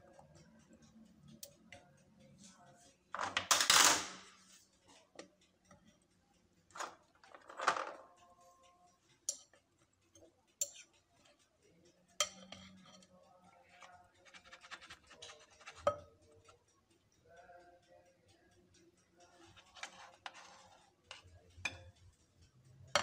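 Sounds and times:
utensils scraping ceramic bowl: 0:14.2 - 0:16.0, 0:19.5 - 0:21.8.

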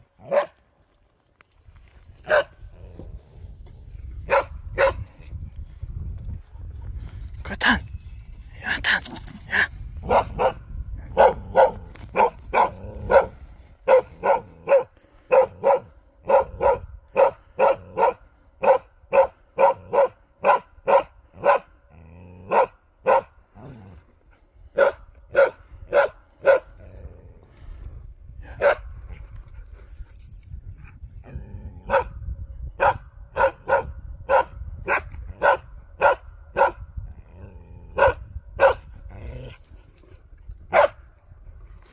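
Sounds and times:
dog barking: 0:00.2 - 0:00.6, 0:02.2 - 0:02.5, 0:04.3 - 0:05.1, 0:10.0 - 0:21.7, 0:22.5 - 0:23.4, 0:24.8 - 0:26.8, 0:28.6 - 0:28.9, 0:31.9 - 0:32.2, 0:32.8 - 0:36.8, 0:38.0 - 0:38.9, 0:40.7 - 0:41.0.

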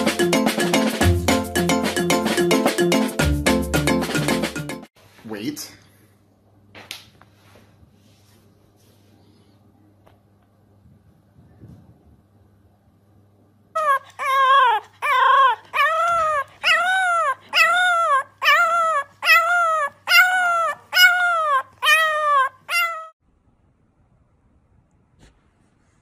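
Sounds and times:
puppy crying: 0:13.8 - 0:23.2.

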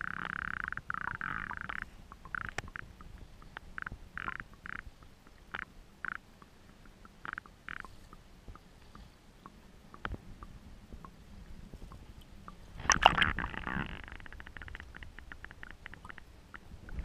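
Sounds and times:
quick ticks and small clicks: 0:00.0 - 0:11.2, 0:11.9 - 0:17.0
water splashing and bubbling: 0:11.9 - 0:17.0.

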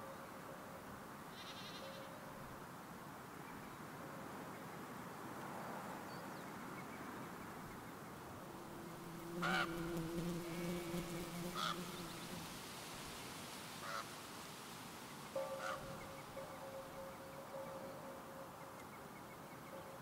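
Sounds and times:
wind-like hiss: 0:00.6 - 0:17.3
short bird calls: 0:01.3 - 0:02.2, 0:15.4 - 0:17.9.

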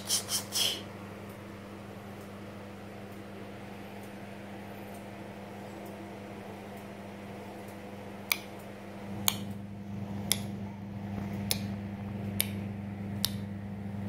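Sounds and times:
low hum: 0:01.0 - 0:14.0
sharp short clicks: 0:08.2 - 0:09.5, 0:11.5 - 0:11.8, 0:12.4 - 0:12.6, 0:13.2 - 0:13.5.

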